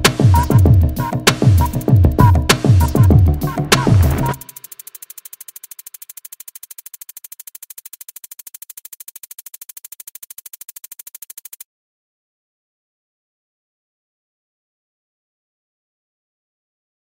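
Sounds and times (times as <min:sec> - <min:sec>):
electronic music with drum machine: 0:00.0 - 0:11.6
fast fluttering hiss: 0:00.4 - 0:11.6.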